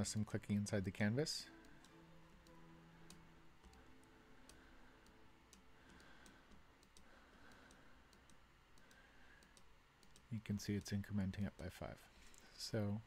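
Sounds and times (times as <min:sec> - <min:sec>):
faint low hum: 0:00.0 - 0:13.0
computer mouse clicks: 0:01.6 - 0:11.7.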